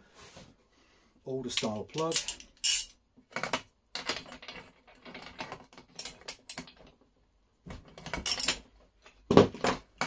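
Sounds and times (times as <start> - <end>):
metal tools clicking and rattling: 1.5 - 3.0, 4.0 - 7.0, 8.1 - 8.7.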